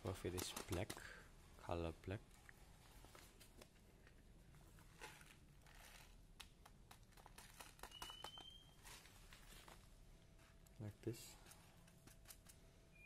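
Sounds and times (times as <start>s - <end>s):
pellets ticking into plastic cup: 7.0s - 8.6s.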